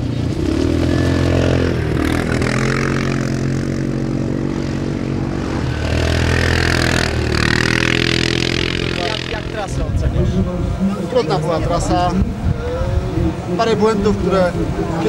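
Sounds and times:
quad bike engines revving: 0.0s - 15.0s.

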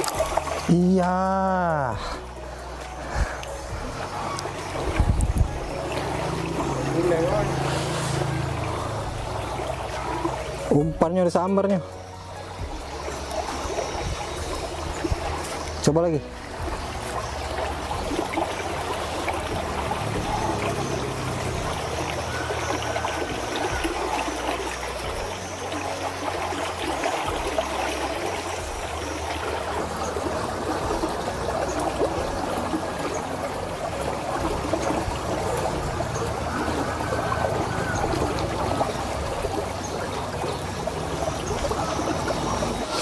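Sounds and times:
water trickling over weir: 0.0s - 43.0s.

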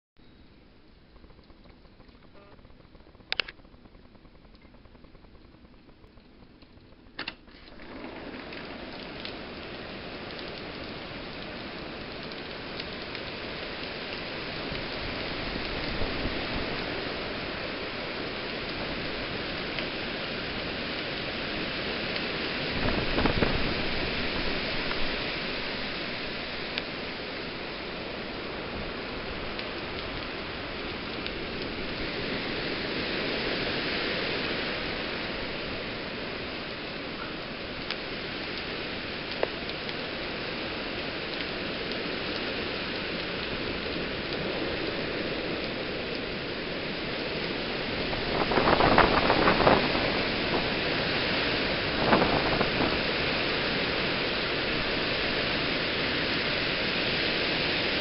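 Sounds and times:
strong wind and heavy rain: 0.7s - 58.0s
click: 1.2s - 3.9s, 6.2s - 7.4s.

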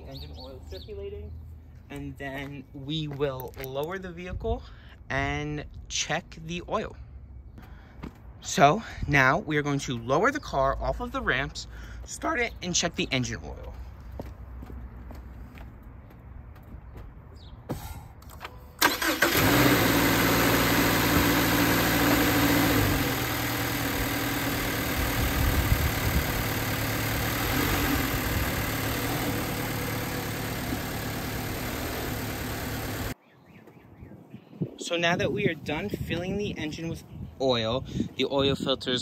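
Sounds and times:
car engine starting and idling: 18.4s - 33.2s.

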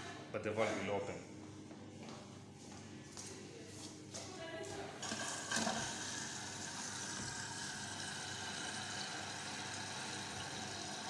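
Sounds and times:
water running into washer: 5.0s - 11.0s.

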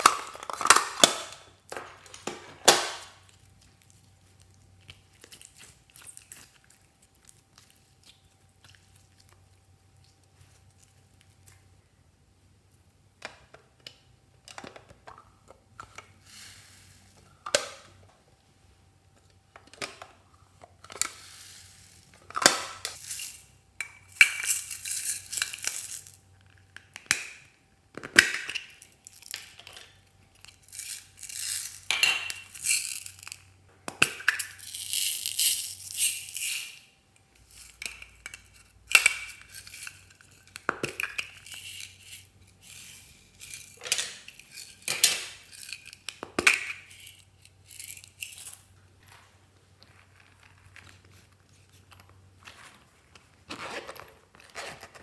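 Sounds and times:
foam beads pouring rattling: 24.4s - 26.2s, 30.6s - 31.9s, 34.6s - 36.8s.

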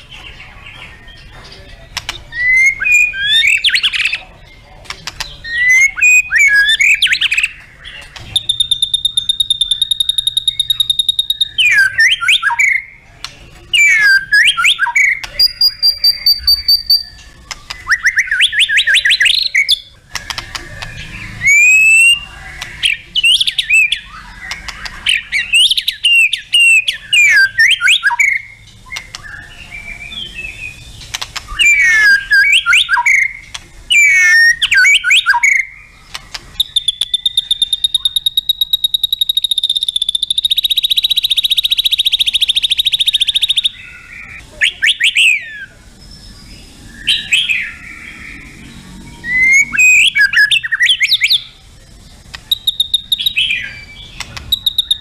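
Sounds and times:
bird singing whistled phrases: 2.3s - 4.2s, 5.4s - 13.0s, 13.8s - 51.5s, 52.3s - 55.0s
bird rattling trill: 5.0s - 12.8s, 30.9s - 43.7s, 52.2s - 55.0s.

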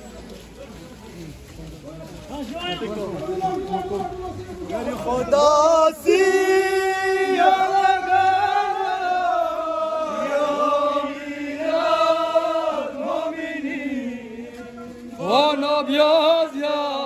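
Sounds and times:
crowd chanting in unison: 4.6s - 17.0s.

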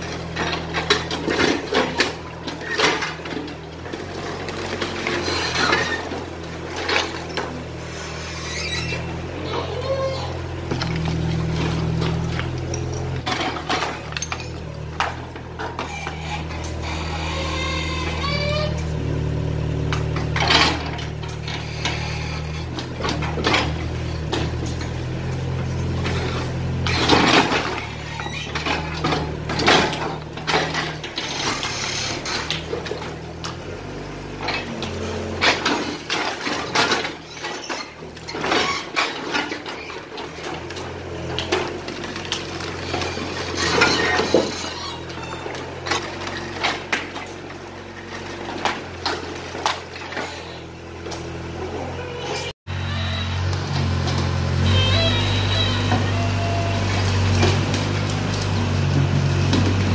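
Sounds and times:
excavator diesel engine: 0.0s - 59.9s
concrete debris crashing: 10.4s - 16.8s, 34.3s - 51.6s.

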